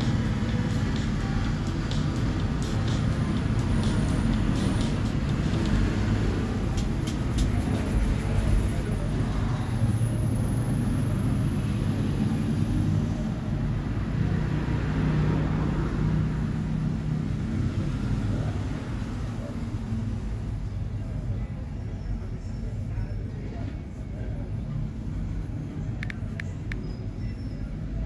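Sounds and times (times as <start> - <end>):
faint clicks: 26.0 - 26.9.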